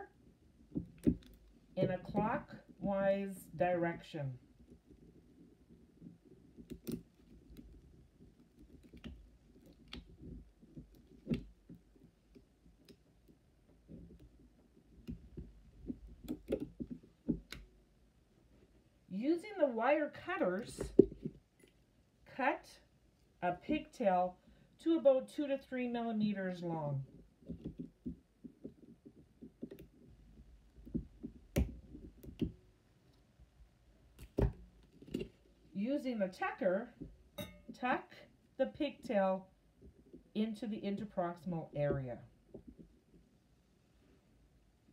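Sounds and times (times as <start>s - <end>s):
faint metal clicks and taps: 0.7s - 2.3s, 4.6s - 17.8s, 20.8s - 21.8s, 27.1s - 33.2s, 34.1s - 35.5s, 37.0s - 37.8s, 41.9s - 43.3s
small plastic clicks: 6.5s - 14.4s, 15.0s - 17.7s.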